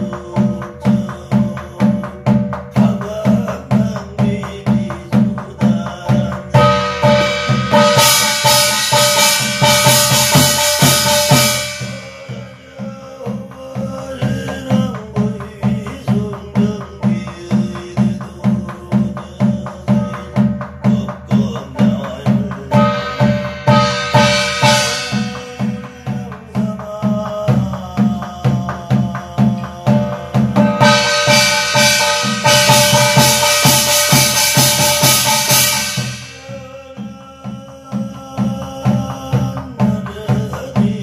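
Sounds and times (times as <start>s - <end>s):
barrel drum beaten steadily: 0.0s - 41.0s
man chanting: 0.0s - 41.0s
small brass gong clanging: 6.6s - 12.8s, 22.8s - 26.0s, 30.6s - 36.5s.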